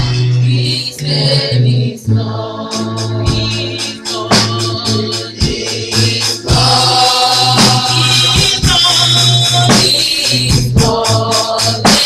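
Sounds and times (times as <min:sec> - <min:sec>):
keyboard organ sound: 0:00.0 - 0:12.0
women singing gospel: 0:00.0 - 0:12.0.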